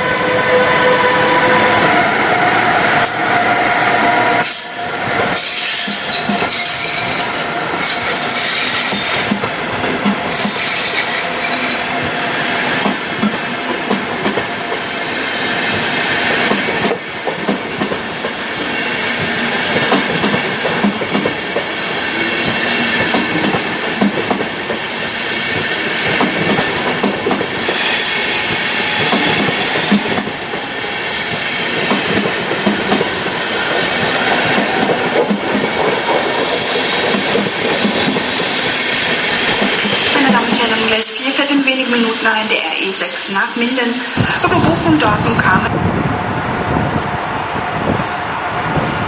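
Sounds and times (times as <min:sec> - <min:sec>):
train wheels clicking on rail joints: 0:04.0 - 0:41.2
train wheels squealing: 0:04.4 - 0:09.3, 0:10.3 - 0:12.6, 0:27.5 - 0:30.4, 0:36.3 - 0:40.2.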